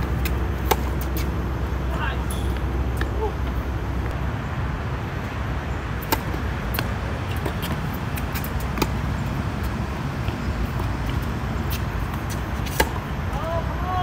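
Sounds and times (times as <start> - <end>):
tennis ball struck by racquet: 0.2 - 1.2, 6.0 - 9.0, 12.2 - 13.0.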